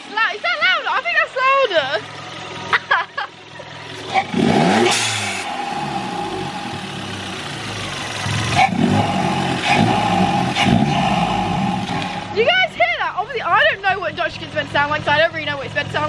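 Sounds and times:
car engine revving: 1.8s - 16.0s
rush of air: 4.8s - 8.1s, 8.8s - 12.4s.

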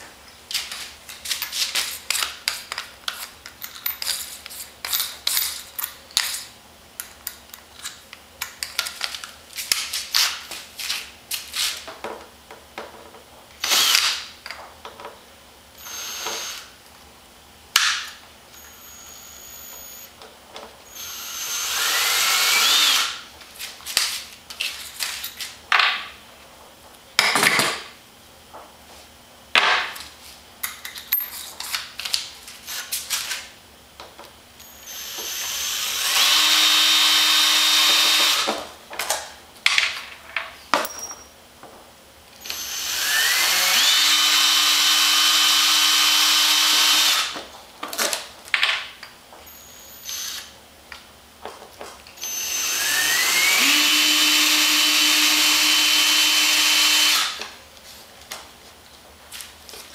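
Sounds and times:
cordless drill whining: 13.6s - 14.1s, 15.8s - 16.7s, 18.6s - 20.1s, 20.9s - 23.2s, 34.6s - 38.5s, 42.4s - 47.3s, 49.5s - 50.5s, 52.2s - 57.4s.

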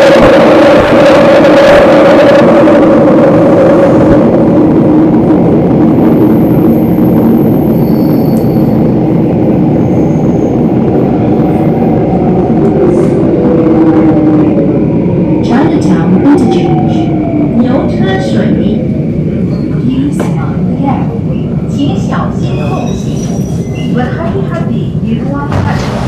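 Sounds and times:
train wheels rumbling on rail: 0.0s - 26.0s.

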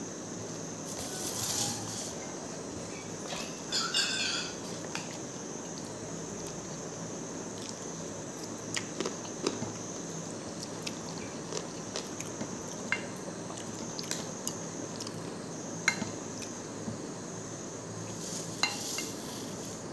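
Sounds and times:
steady hiss: 0.0s - 19.9s
chewing: 7.5s - 12.9s, 13.5s - 15.2s.

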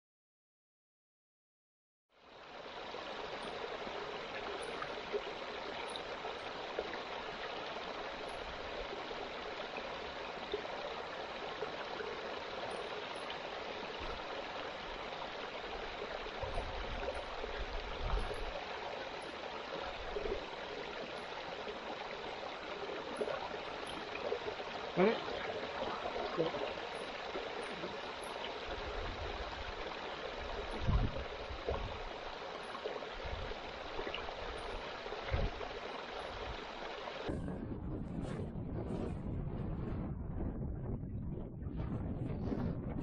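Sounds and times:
stream trickling over rocks: 2.2s - 37.4s.

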